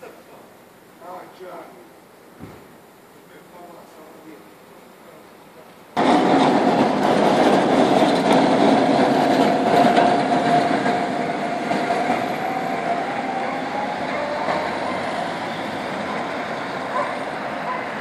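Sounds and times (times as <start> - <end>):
tram rolling rumble: 5.7 - 18.0
tram wheels squealing: 6.0 - 18.0.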